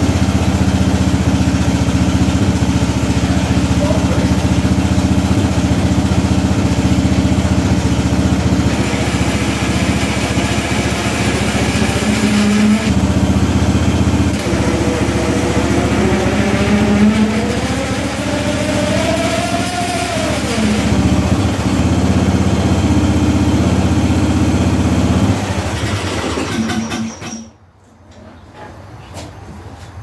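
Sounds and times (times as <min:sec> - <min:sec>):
mower engine running: 0:00.0 - 0:27.2
high whine: 0:08.6 - 0:22.6.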